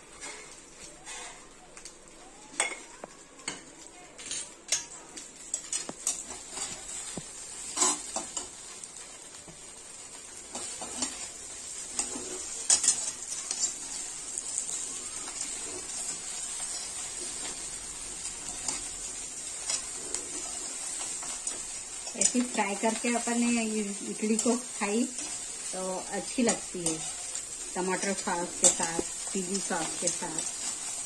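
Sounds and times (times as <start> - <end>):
food sizzling in oil: 0.0 - 31.0
metal ladle scraping a pan: 7.7 - 8.2.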